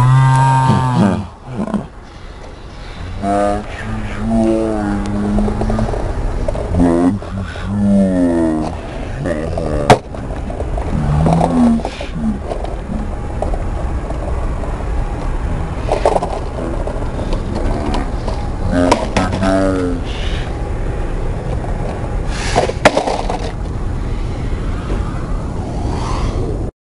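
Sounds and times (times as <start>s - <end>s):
low rumble: 0.0s - 26.7s.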